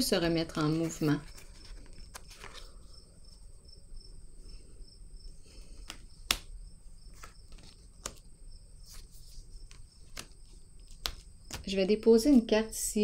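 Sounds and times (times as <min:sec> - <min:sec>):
cards clicking and tapping on table: 0:05.7 - 0:06.5, 0:07.1 - 0:08.3, 0:09.6 - 0:11.7.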